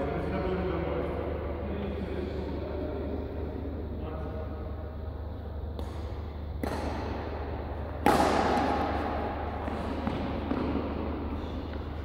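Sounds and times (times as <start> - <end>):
steady low hum: 0.0 - 12.0
loud racket crack with echo: 5.7 - 11.9
racket hitting shuttlecock: 5.7 - 12.0.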